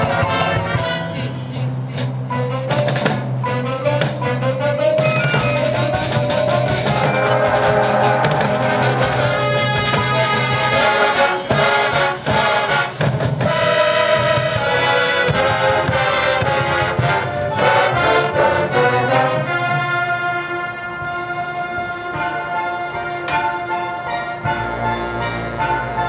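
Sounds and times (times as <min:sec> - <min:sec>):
marching band playing: 0:00.0 - 0:26.0
sharp percussion hits: 0:05.0 - 0:18.3.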